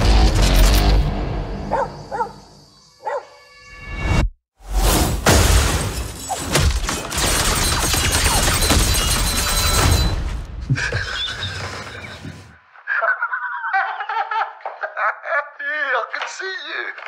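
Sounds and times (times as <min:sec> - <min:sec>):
trailer music: 0:00.0 - 0:02.1
booms and crashing impacts: 0:04.7 - 0:10.5.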